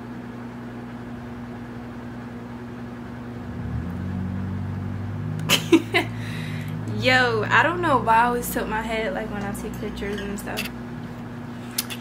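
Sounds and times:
steady mechanical hum: 0.0s - 12.0s
deeper hum: 3.1s - 11.6s.

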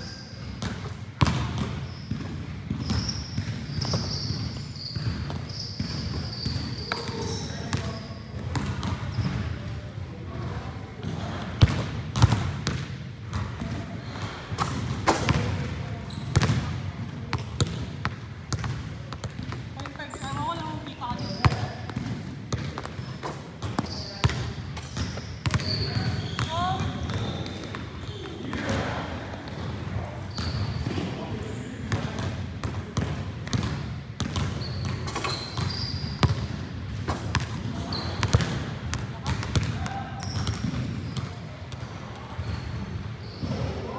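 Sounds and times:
basketball bouncing on gym floor: 0.4s - 9.7s, 11.0s - 31.1s, 31.9s - 43.8s
short high squeaks: 3.0s - 8.3s, 34.6s - 36.2s.

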